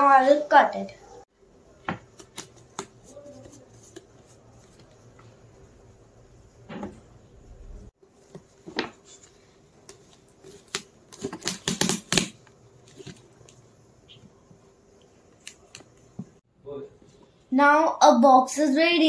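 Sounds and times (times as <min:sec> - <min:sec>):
packing tape crackling: 0:09.9 - 0:13.6.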